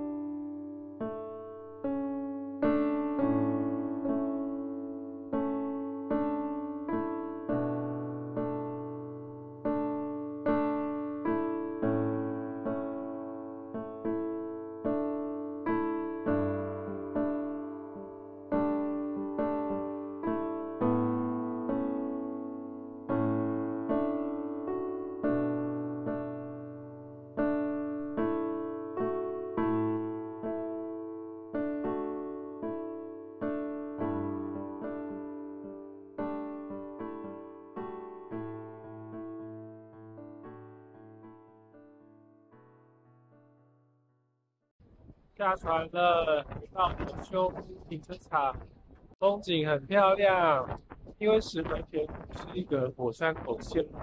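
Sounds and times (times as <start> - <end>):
electric piano playing slow chords: 0.0 - 43.9.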